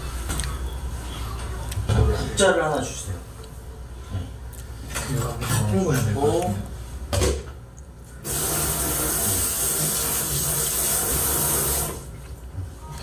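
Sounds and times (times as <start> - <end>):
kitchen tap running: 8.2 - 12.1.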